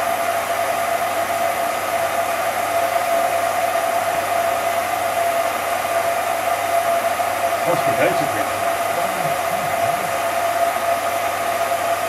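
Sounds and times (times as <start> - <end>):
film projector whirring: 0.0 - 12.0.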